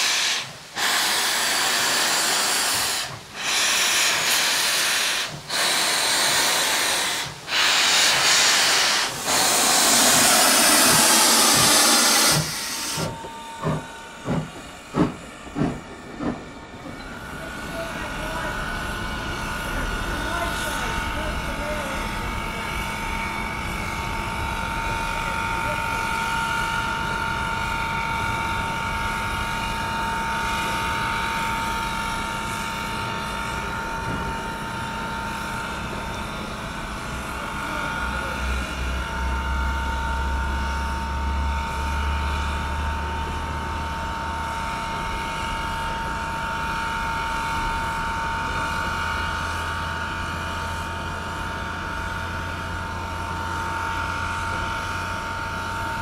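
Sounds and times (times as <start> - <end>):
steam hissing: 0.0 - 27.1
steam locomotive whine: 0.0 - 56.0.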